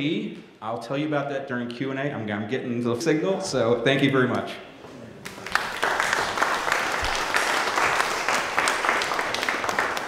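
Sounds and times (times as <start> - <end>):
audience applauding: 5.2 - 10.0.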